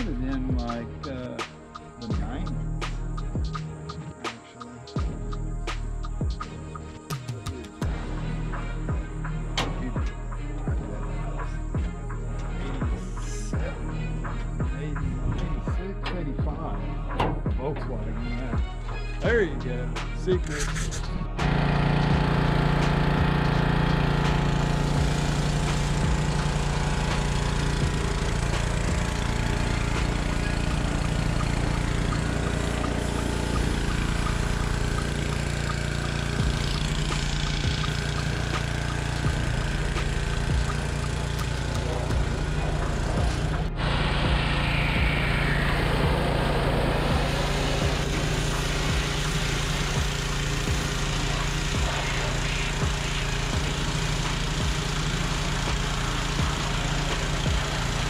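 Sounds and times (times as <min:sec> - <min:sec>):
engine running steadily: 0:00.0 - 0:58.0.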